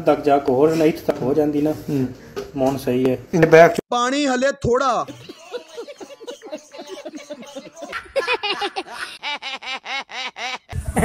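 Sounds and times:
person laughing: 0:05.1 - 0:11.0.

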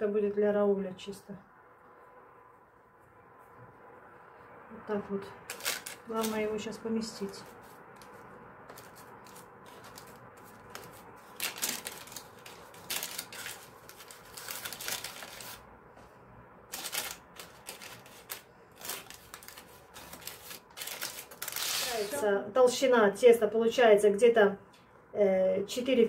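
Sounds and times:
baking parchment rustling: 0:05.4 - 0:15.7, 0:16.6 - 0:22.2.

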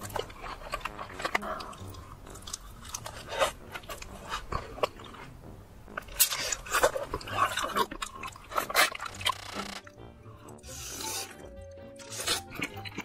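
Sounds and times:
person chewing food: 0:00.0 - 0:13.0.

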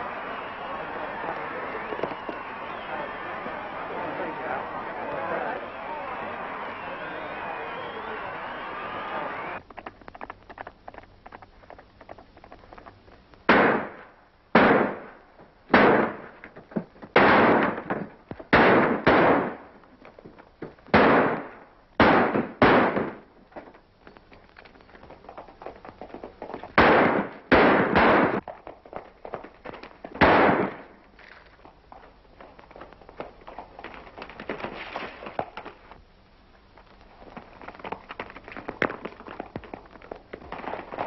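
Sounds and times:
gunshots with short echo: 0:13.5 - 0:16.4, 0:20.9 - 0:23.2, 0:26.8 - 0:28.4, 0:30.2 - 0:31.0.

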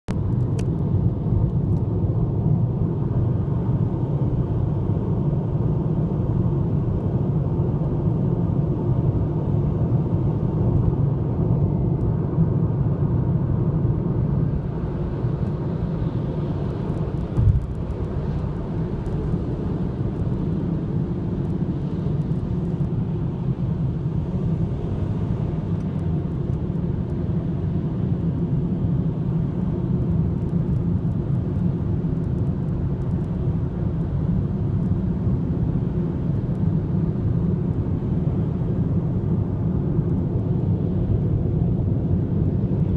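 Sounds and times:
car road and engine rumble: 0:00.1 - 0:42.9
brief thump: 0:17.4 - 0:17.7.

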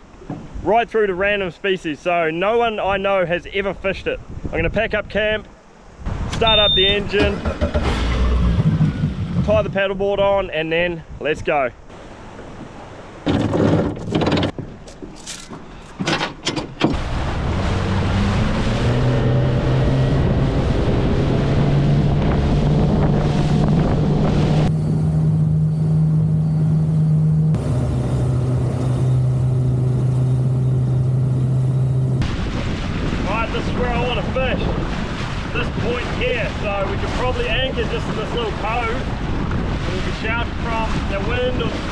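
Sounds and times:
anchor chain clattering: 0:13.4 - 0:16.8
outboard motor running: 0:16.9 - 0:33.3.

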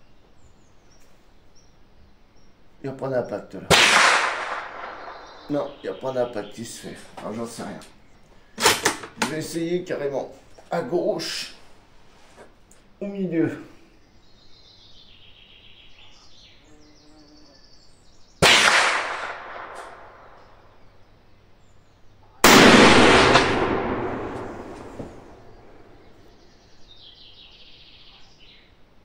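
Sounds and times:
rifle shots with echo: 0:03.7 - 0:05.7, 0:18.4 - 0:20.4, 0:22.4 - 0:26.1.

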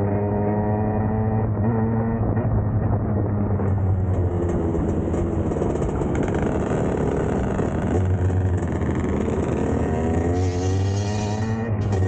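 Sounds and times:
two-stroke dirt bike engines: 0:03.7 - 0:12.0.

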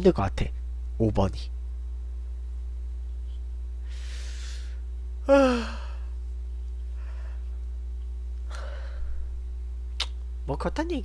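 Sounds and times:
man breathing in: 0:03.8 - 0:06.1, 0:07.0 - 0:07.5, 0:08.5 - 0:09.3
man sighing: 0:05.3 - 0:06.1.

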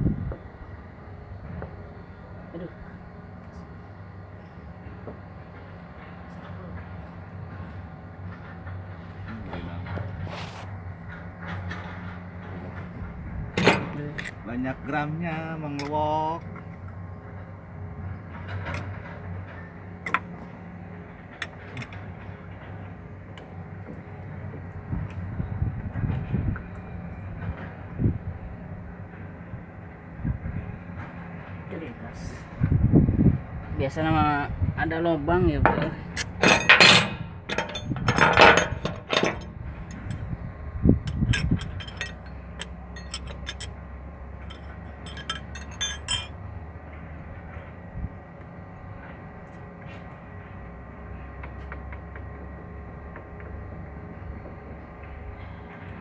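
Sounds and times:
steady low hum: 0:00.0 - 0:56.0
sharp metal clinks: 0:41.1 - 0:43.8, 0:44.4 - 0:46.4.

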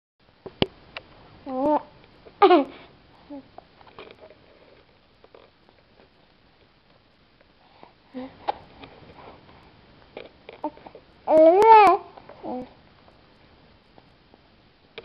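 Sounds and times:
infant cooing and babbling: 0:01.5 - 0:01.9, 0:10.6 - 0:12.8.

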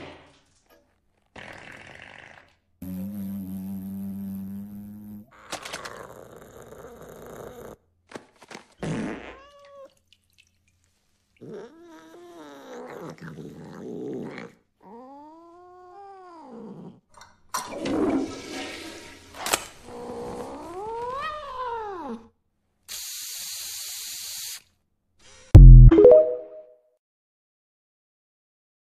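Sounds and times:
cat yowling: 0:20.2 - 0:22.2
aerosol spray hissing: 0:22.9 - 0:24.6.

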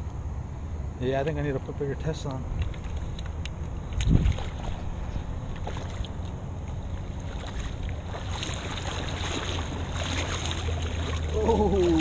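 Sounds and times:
wind rumbling on microphone: 0:02.4 - 0:12.0
water sloshing: 0:02.5 - 0:12.0.

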